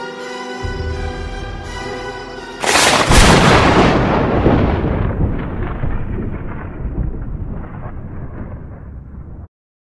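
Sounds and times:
thunder rolling: 2.6s - 9.5s.

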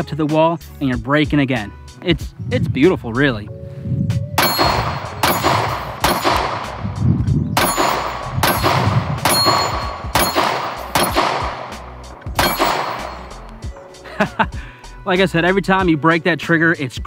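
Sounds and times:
steel target ringing: 4.4s - 6.9s, 7.6s - 13.6s
pistol shots: 4.4s - 7.0s, 7.6s - 13.6s.

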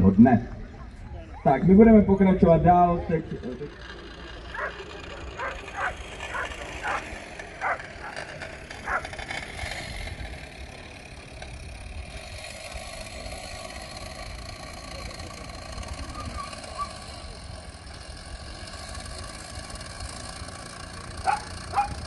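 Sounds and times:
steady background noise: 0.0s - 22.0s
dogs barking: 4.5s - 9.2s, 16.2s - 17.2s, 21.2s - 22.0s.

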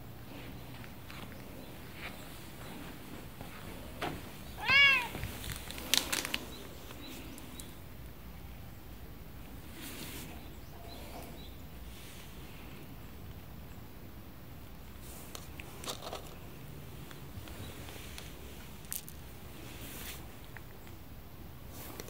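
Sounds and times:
cat meowing: 4.6s - 5.3s.

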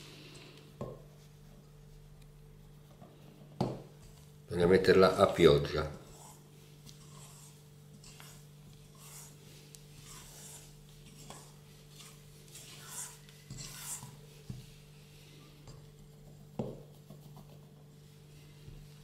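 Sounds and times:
spatula scraping metal bowl: 6.0s - 14.3s.

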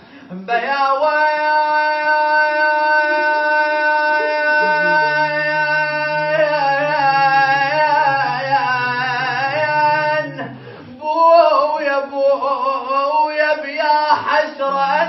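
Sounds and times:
man singing unaccompanied: 0.2s - 15.0s.

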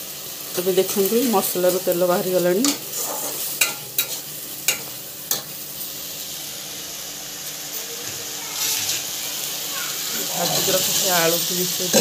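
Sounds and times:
paste sizzling in hot oil: 0.0s - 12.0s.

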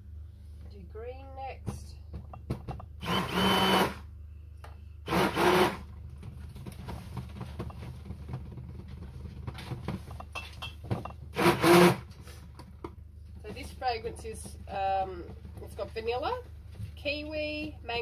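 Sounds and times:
stick blender bursts: 3.0s - 4.0s, 5.1s - 5.9s, 11.4s - 12.1s.

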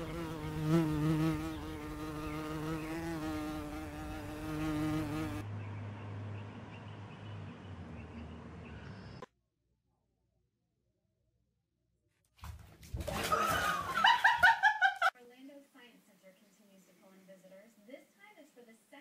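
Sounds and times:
insect buzzing: 0.0s - 5.4s.

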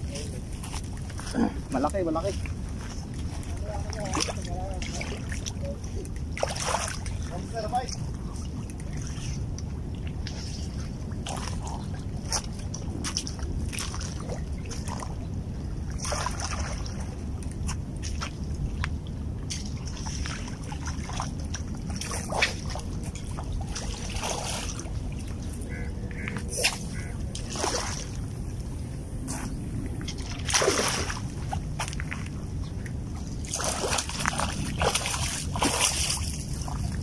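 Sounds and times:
steady low rumble: 0.0s - 37.0s
fish splashing in water: 19.6s - 28.2s, 30.1s - 32.2s, 33.2s - 37.0s.

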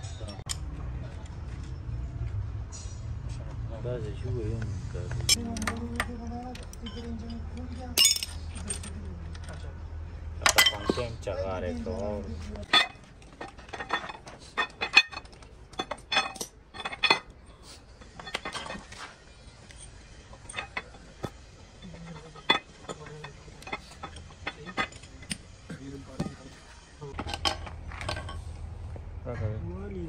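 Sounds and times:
metal tools clicking and tapping: 0.0s - 0.8s, 5.1s - 9.6s, 10.4s - 11.1s, 12.6s - 28.4s.

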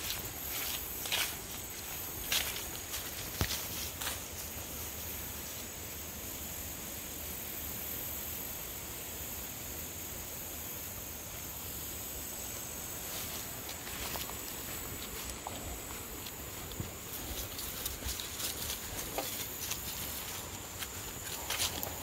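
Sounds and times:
footsteps on grass: 0.0s - 5.8s, 12.9s - 22.0s
insects singing: 0.0s - 22.0s.

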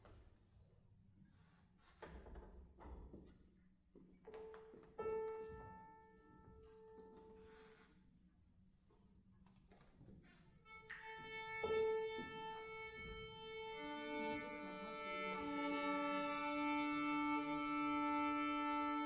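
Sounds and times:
violin bowing long notes: 10.7s - 19.0s.

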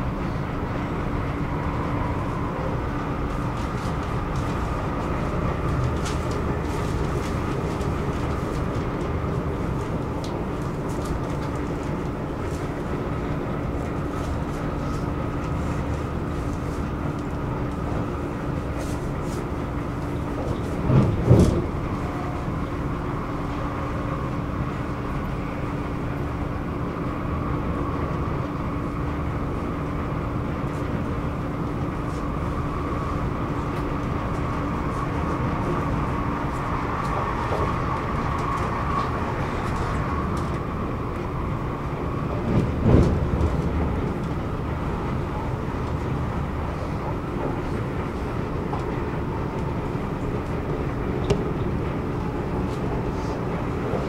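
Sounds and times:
train rumble on track: 0.0s - 54.0s.

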